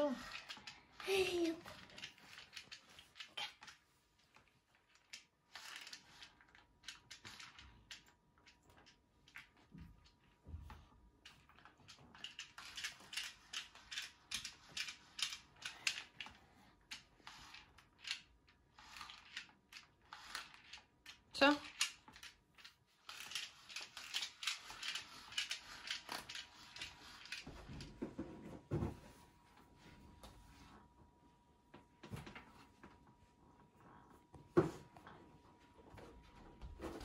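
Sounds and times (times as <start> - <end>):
plastic toy clicking and rustling: 0.0 - 10.2, 11.2 - 27.9.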